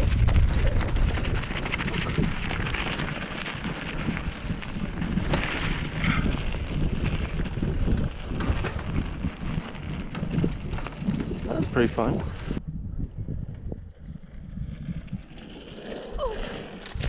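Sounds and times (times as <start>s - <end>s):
tyres rumbling on gravelly dirt: 0.0s - 12.6s, 13.4s - 17.0s
wind buffeting microphone: 0.0s - 15.5s
bike clicks and knocks: 0.3s - 12.6s.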